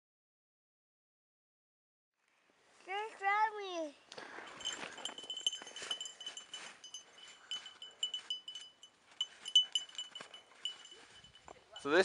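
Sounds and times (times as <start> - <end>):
small bell jingling: 4.3 - 12.0.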